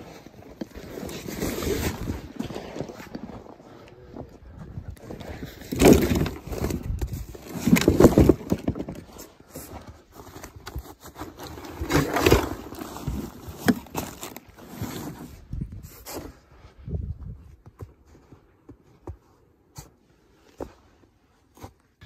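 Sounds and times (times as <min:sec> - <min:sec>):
scraping and rustling of gear: 0:00.0 - 0:03.6, 0:05.0 - 0:16.3.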